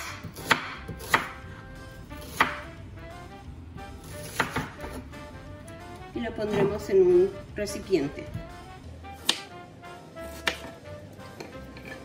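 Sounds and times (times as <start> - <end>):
knife chopping on wooden board: 0.0 - 1.4, 2.2 - 2.6, 4.1 - 5.0, 9.2 - 9.5, 10.3 - 10.8.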